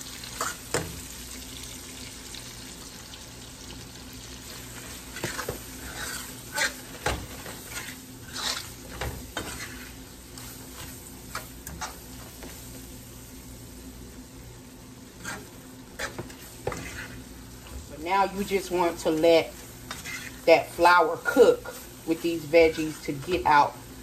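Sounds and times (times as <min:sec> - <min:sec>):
food sizzling in skillet: 0:00.0 - 0:24.0
wire skimmer scraping pan: 0:15.2 - 0:21.0.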